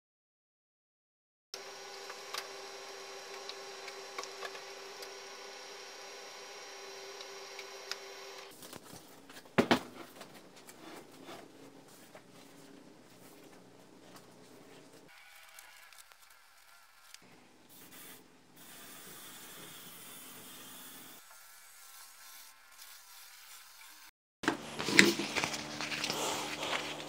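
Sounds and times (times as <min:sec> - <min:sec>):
printer whirring: 0:01.6 - 0:08.7
paper rustling: 0:08.5 - 0:17.2, 0:24.5 - 0:27.0.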